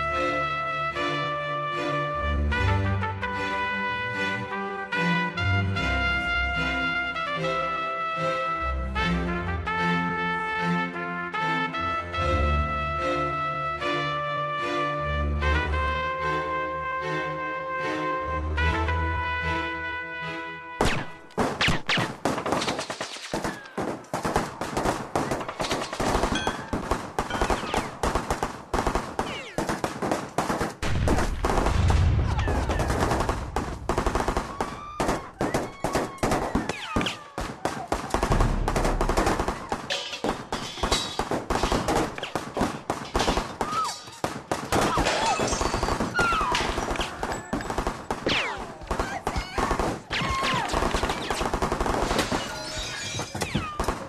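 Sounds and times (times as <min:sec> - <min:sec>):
automatic gunfire: 0:21.4 - 0:31.8, 0:32.5 - 0:40.5, 0:41.2 - 0:52.4.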